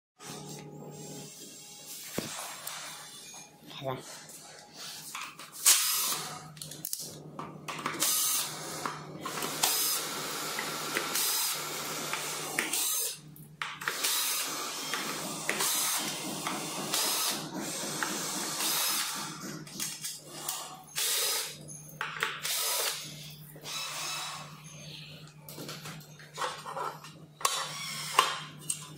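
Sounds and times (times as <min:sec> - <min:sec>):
cordless drill spinning screws: 0:08.0 - 0:13.2, 0:13.8 - 0:19.4, 0:22.4 - 0:24.5, 0:27.4 - 0:28.4.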